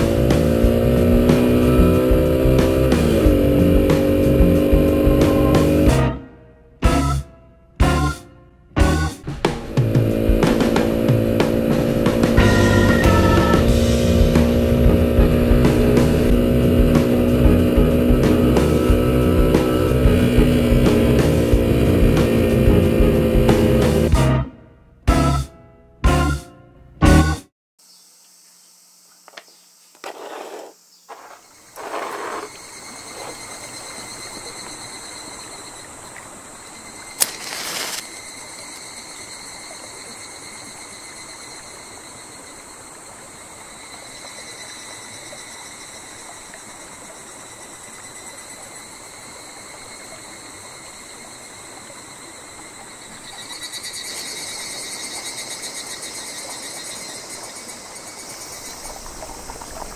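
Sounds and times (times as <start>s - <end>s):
insects chirring: 27.8s - 59.9s.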